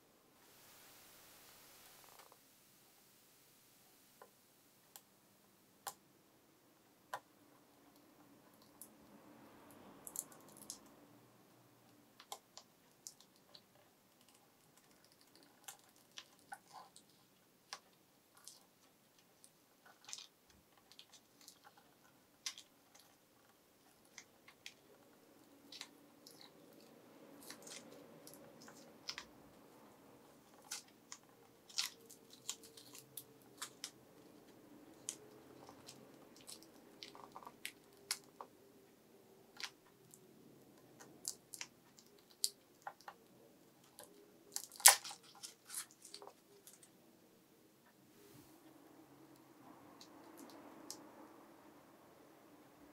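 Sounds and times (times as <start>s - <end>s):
masking tape crinkling: 12.2s - 38.6s, 40.9s - 46.9s.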